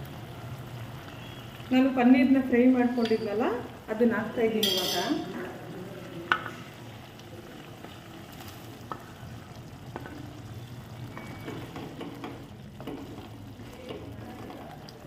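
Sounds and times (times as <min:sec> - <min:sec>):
soft sizzle in a pan: 0:00.0 - 0:15.0
spatula tapping and scraping pan: 0:11.1 - 0:14.6.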